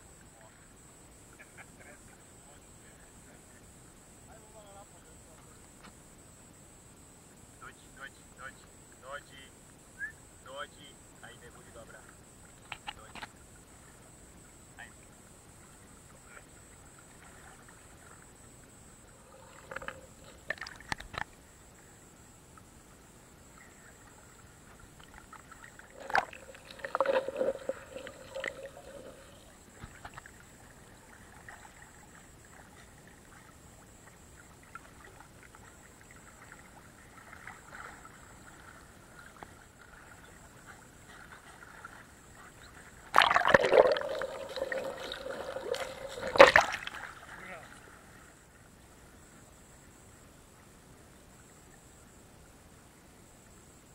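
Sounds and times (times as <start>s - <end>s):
water splashes: 15.6s - 21.3s, 23.5s - 48.4s
river water sloshing and gurgling: 15.6s - 21.6s, 23.4s - 49.3s.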